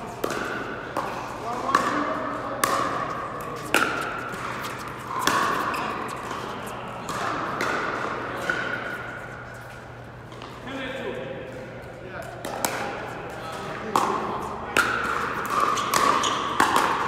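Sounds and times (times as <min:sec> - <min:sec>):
paddles hitting plastic ball: 0:00.2 - 0:08.8, 0:13.9 - 0:17.0.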